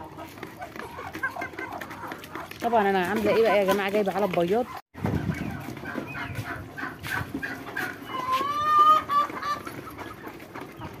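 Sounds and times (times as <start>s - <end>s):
chickens clucking: 0.0s - 11.0s
chicken rising call: 6.2s - 9.7s.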